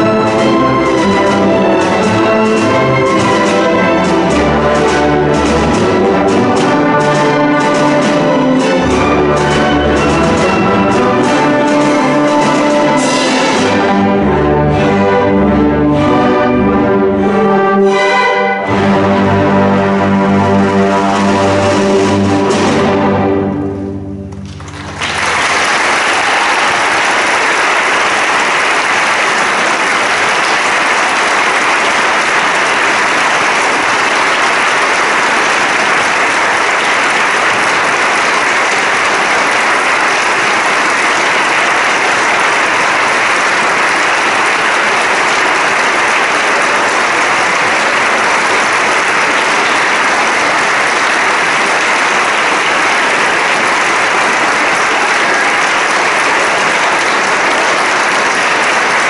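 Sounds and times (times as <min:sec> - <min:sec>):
audience applauding: 0:00.0 - 0:14.0, 0:24.3 - 0:59.0
orchestra chord: 0:00.0 - 0:25.1.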